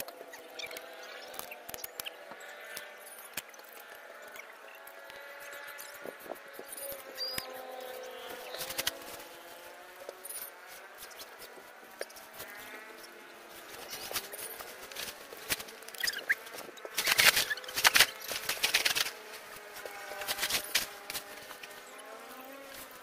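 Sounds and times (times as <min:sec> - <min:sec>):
tent fabric rustling: 0:06.1 - 0:23.0.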